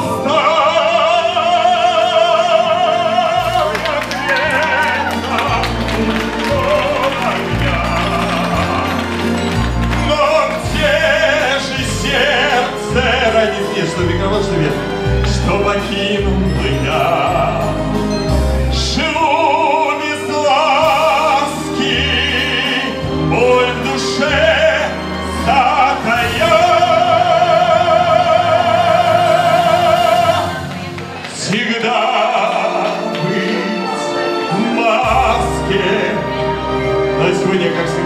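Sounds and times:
backing track music: 0.0 - 38.0
man singing operatically: 0.0 - 38.0.

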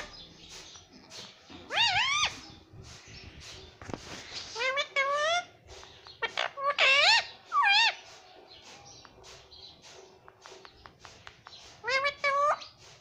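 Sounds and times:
parakeet calling: 0.0 - 3.7, 4.3 - 9.8, 10.5 - 12.8
beak tapping phone screen: 10.2 - 12.4.

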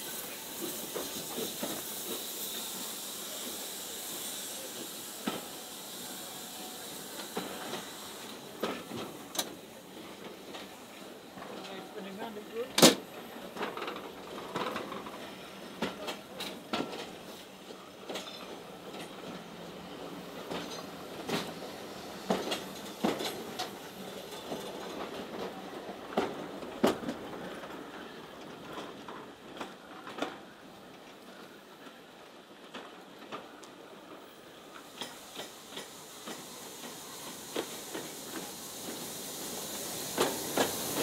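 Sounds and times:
train rumbling past: 0.0 - 41.0
wheels clicking over rail joints: 11.4 - 17.2.

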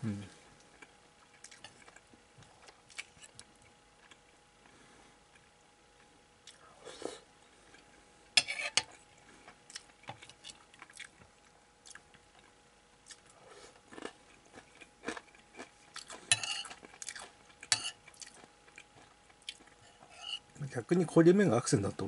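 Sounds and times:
person chewing: 0.6 - 6.7, 8.9 - 11.2, 11.8 - 20.4
metal spoon scraping plate: 8.4 - 8.9, 16.3 - 16.7, 19.9 - 20.4.

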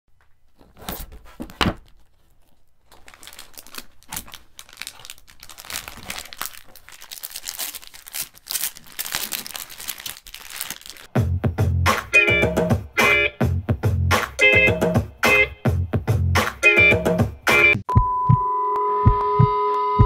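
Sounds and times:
plastic wrap crinkling: 0.2 - 11.1.

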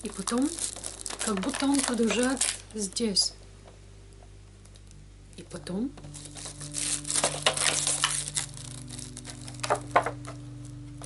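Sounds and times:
sharp plastic crackles: 0.0 - 2.9, 6.0 - 10.8
plastic film crinkling: 0.0 - 3.0, 6.0 - 11.0.

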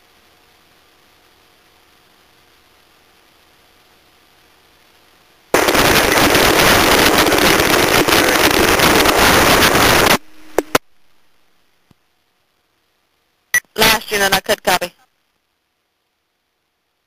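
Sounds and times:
radio static hiss: 0.0 - 17.0
radio clicks: 5.6 - 10.8
short low tone: 10.2 - 11.0.

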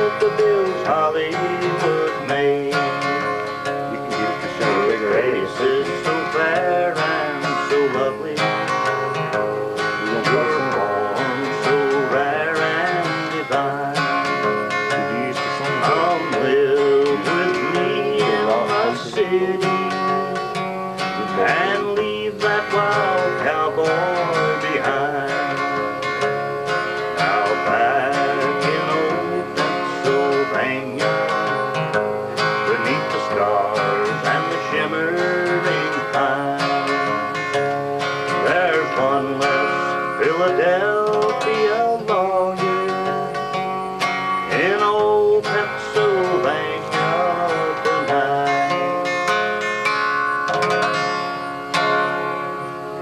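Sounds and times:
man singing: 0.0 - 43.6, 44.4 - 49.8
acoustic guitar strumming: 0.0 - 53.0.

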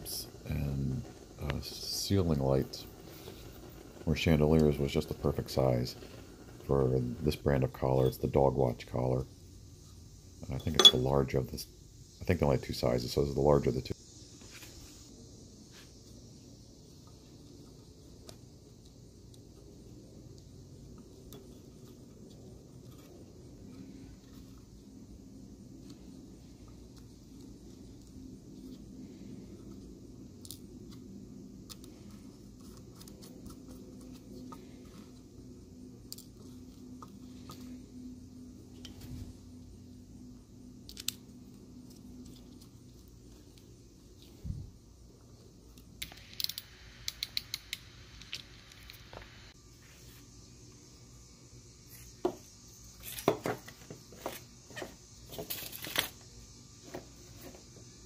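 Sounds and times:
steady low hum: 0.0 - 58.0
sharp plastic clicks: 45.8 - 49.0.

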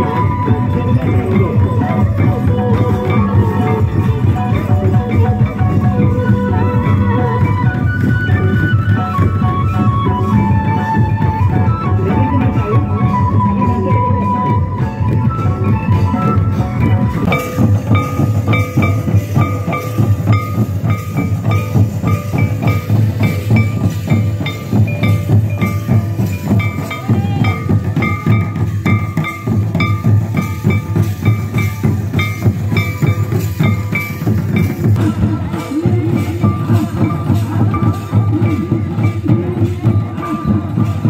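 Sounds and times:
high melodic figure: 12.4 - 40.4
barrel drums beaten fast: 13.5 - 41.0.

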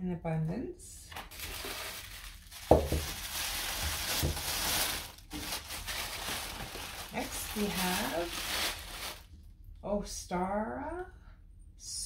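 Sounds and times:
tissue paper rustling: 1.1 - 9.3.

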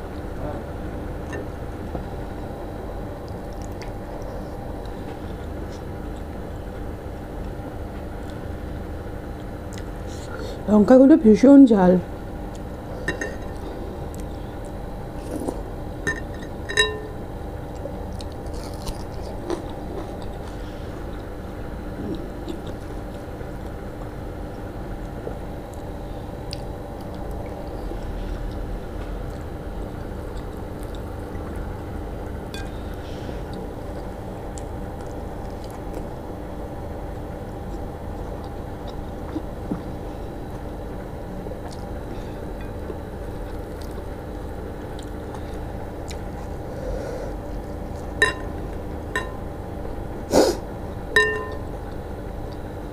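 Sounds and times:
steady background hum: 0.0 - 52.9
quiet chewing: 3.2 - 6.5, 9.3 - 10.4, 13.4 - 15.7, 17.7 - 21.4, 22.0 - 24.2, 25.0 - 36.3, 37.1 - 40.7, 41.5 - 48.9.

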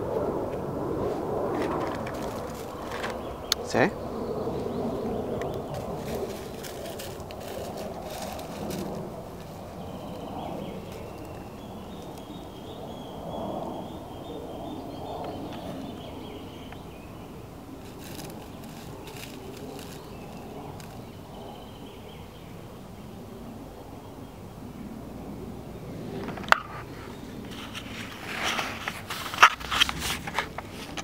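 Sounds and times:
low rustling: 1.0 - 3.5, 4.9 - 12.7, 17.8 - 21.1.

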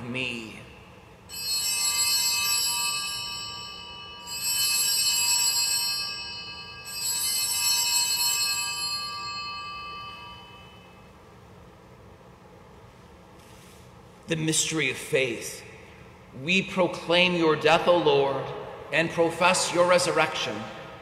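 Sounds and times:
altar bells ringing: 1.3 - 11.2.

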